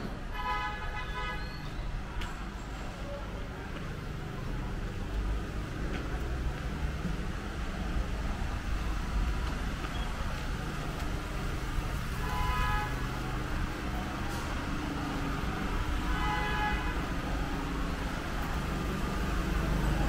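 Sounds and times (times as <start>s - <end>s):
city traffic rumble: 0.0s - 20.0s
vehicle horn honking: 12.2s - 13.1s, 16.0s - 17.1s.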